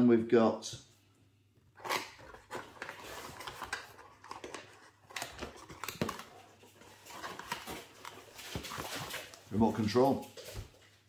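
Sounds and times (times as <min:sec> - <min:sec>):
packaging rustling and crinkling: 0:01.8 - 0:10.6.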